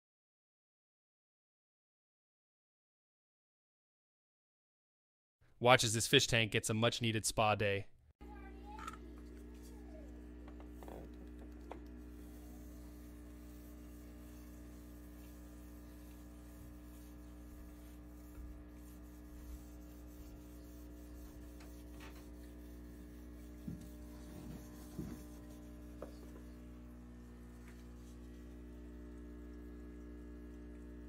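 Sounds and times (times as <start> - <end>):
steady hum: 8.2 - 31.0
algae cleaner scraping glass: 10.7 - 26.7.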